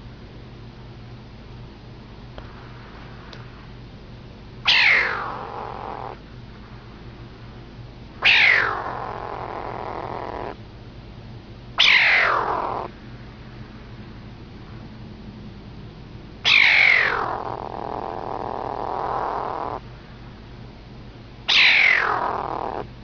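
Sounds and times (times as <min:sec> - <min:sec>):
kitten calling: 0:04.7 - 0:06.2, 0:08.2 - 0:10.6, 0:11.8 - 0:12.9, 0:16.4 - 0:19.8, 0:21.5 - 0:22.9.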